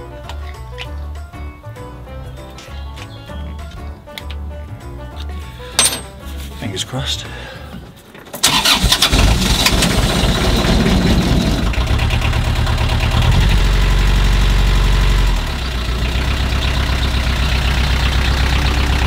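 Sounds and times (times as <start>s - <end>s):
diesel engine idling: 8.4s - 19.0s.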